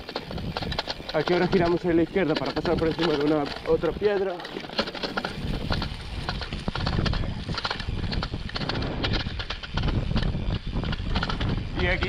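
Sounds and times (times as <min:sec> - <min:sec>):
bike clattering over stones: 0:00.0 - 0:12.0
low rumble: 0:05.2 - 0:12.0.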